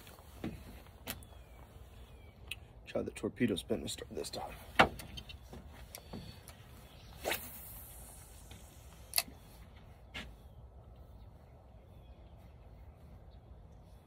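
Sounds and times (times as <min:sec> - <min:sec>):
fishing rod swish: 0:07.1 - 0:09.3
line hissing off spool: 0:07.2 - 0:09.2.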